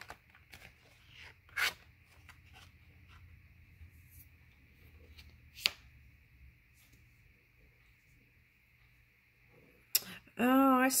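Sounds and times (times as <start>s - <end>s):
cards rustling: 0.0s - 3.3s
card snap: 5.5s - 5.9s.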